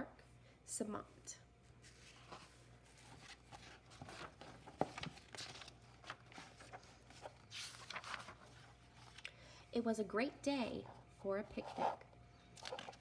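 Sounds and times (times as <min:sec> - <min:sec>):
book pages turning: 0:01.8 - 0:09.3, 0:11.6 - 0:13.0.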